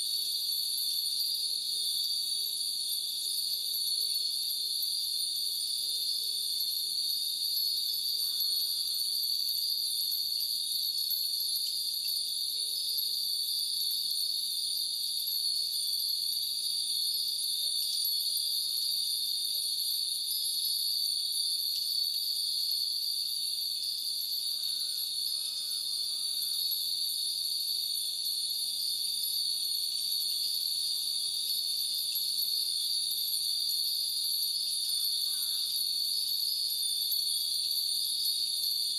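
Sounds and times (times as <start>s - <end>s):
insect chorus: 0.0s - 38.9s.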